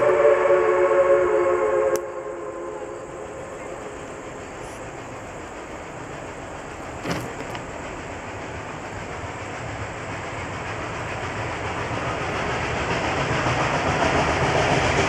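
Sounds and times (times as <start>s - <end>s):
chime steam whistle: 0.0s - 4.7s
train rumbling: 0.0s - 15.0s.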